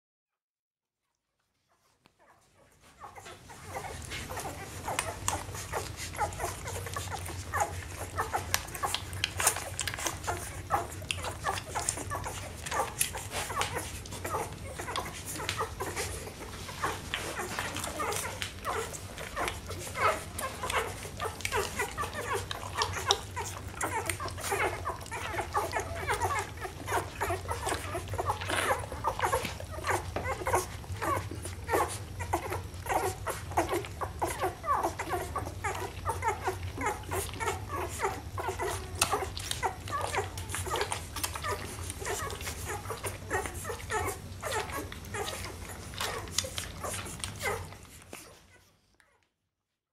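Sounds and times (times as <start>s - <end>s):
puppies squeaking and whining: 1.7s - 49.3s.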